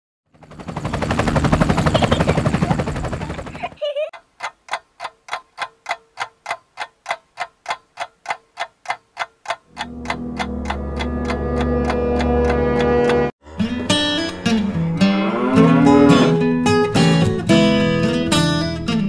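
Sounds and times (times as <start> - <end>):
fast dense rattling: 0.5 - 3.8
clock-like ticking: 4.1 - 13.3
guitar music: 9.7 - 19.0.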